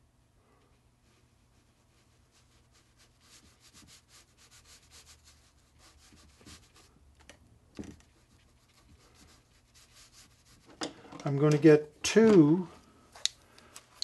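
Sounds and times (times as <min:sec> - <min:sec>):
brush scrubbing on ceramic plate: 0:01.3 - 0:06.9, 0:08.2 - 0:10.8.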